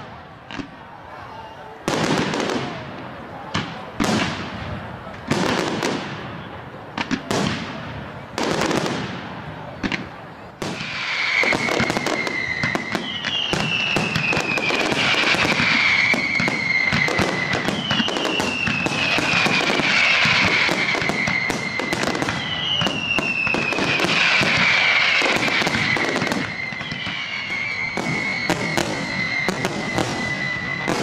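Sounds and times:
fireworks bangs and crackling: 0.0s - 31.0s
falling firework whistle: 10.6s - 31.0s.

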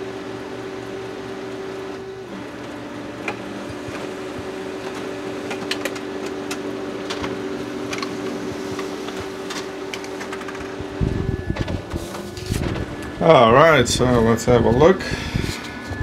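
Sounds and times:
printer mechanical hum: 0.0s - 16.0s.

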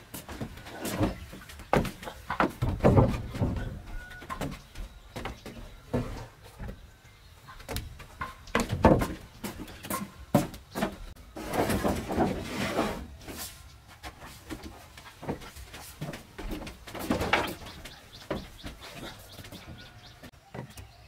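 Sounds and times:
wooden boards knocking: 1.7s - 4.6s, 7.6s - 12.3s
boards scraping on floor: 10.8s - 13.6s.

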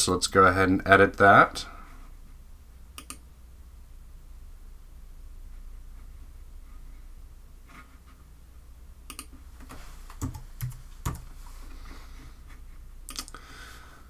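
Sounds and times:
low steady hum: 0.0s - 14.0s
mouse clicks: 3.0s - 3.2s, 9.1s - 9.3s
keyboard keystrokes: 9.1s - 11.3s.

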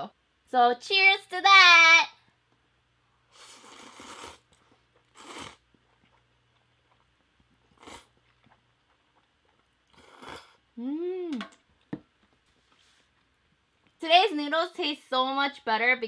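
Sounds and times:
noodles being slurped: 3.3s - 6.2s.

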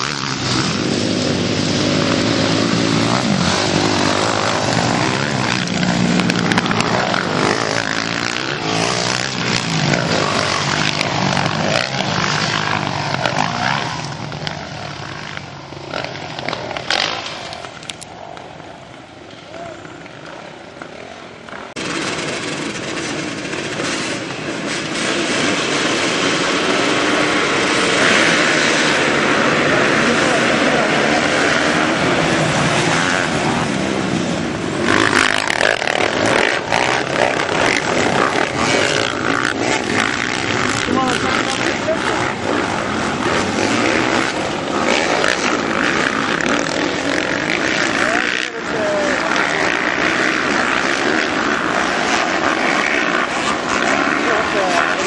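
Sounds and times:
motocross motorcycles revving: 0.0s - 55.0s.

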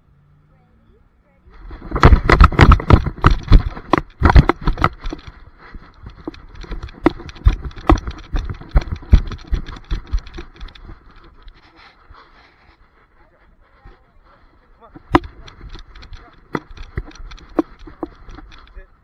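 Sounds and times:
dog footfalls patter: 1.6s - 11.7s, 13.8s - 18.9s.

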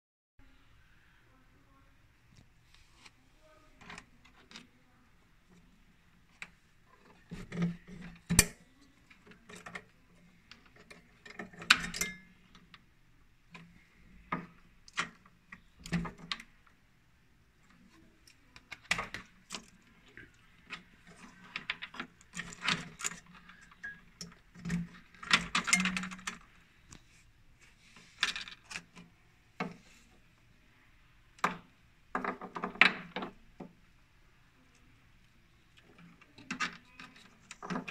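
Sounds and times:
small parts clicking and rattling: 5.5s - 12.9s, 17.6s - 27.0s, 27.9s - 29.9s, 35.6s - 37.9s.

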